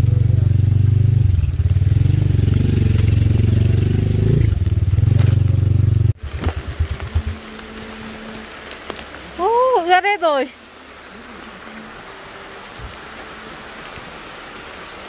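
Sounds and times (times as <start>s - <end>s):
engine running: 0.0s - 9.0s
rain patter on plastic: 0.1s - 15.0s.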